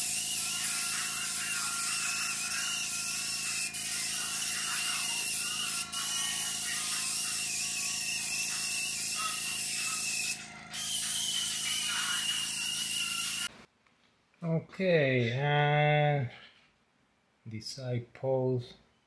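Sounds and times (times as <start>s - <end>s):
air tool hissing and whining: 0.0s - 13.5s.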